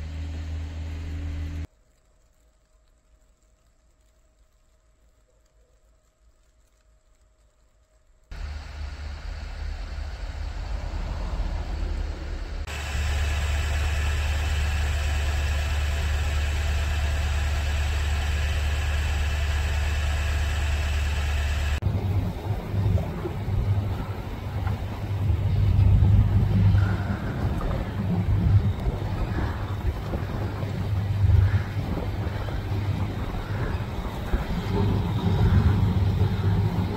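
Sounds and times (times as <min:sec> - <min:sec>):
wind buffeting microphone: 0:21.8 - 0:36.9.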